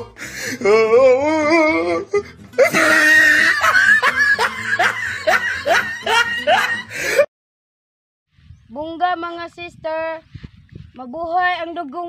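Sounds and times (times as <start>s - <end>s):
youngsters laughing shrilly: 2.1s - 7.3s.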